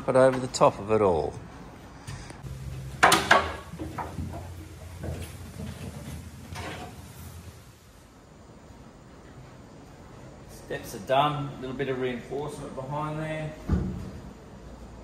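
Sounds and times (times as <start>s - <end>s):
knocks and clunks: 2.1s - 7.0s.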